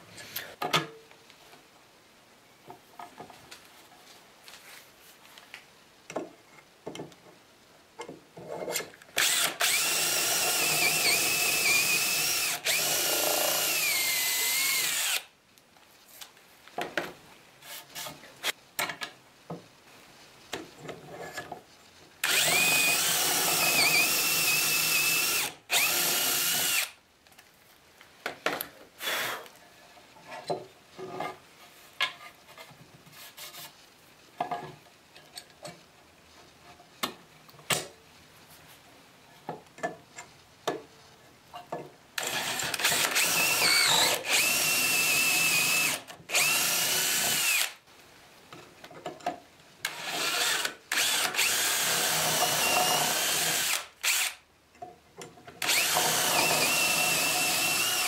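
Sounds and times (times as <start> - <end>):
power drill boring into wood: 9.2 - 15.3, 22.2 - 26.9, 42.2 - 47.8, 49.9 - 54.4, 55.6 - 58.0.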